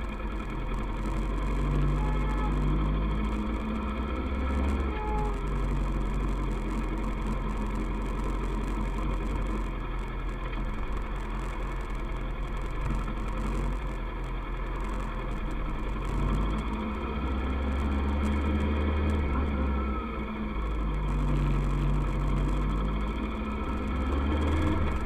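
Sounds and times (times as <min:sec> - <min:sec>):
motorcycle engine running steadily: 0:00.0 - 0:25.0.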